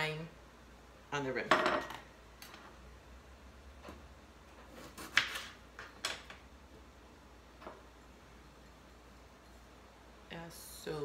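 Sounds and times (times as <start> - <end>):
kitchen items knocking and clinking: 1.5 - 2.1.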